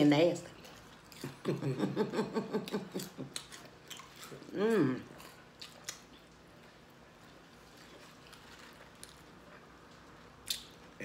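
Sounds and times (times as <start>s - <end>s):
faint eating sounds: 0.0s - 11.0s.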